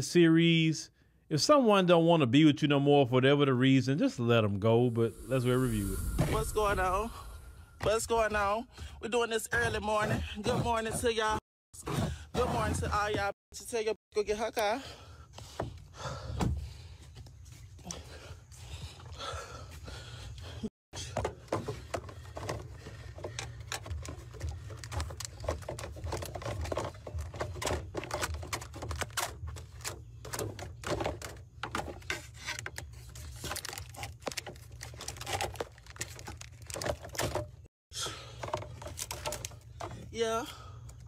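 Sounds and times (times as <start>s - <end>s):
low rumble: 4.8s - 8.8s.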